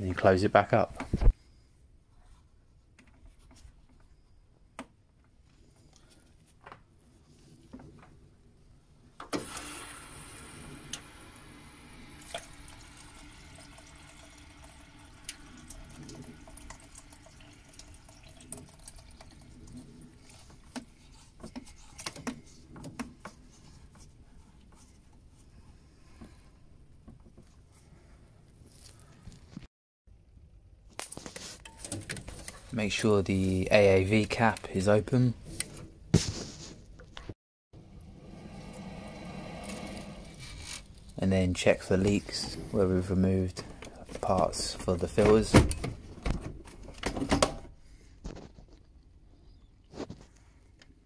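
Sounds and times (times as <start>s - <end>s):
water spurting into bucket: 9.4s - 21.0s.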